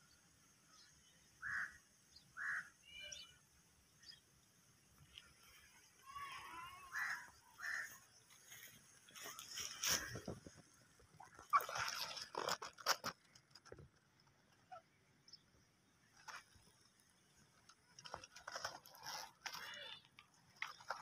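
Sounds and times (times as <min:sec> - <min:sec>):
leaves rustling: 0:04.8 - 0:14.0
footsteps crunching on dry leaves: 0:07.0 - 0:10.8.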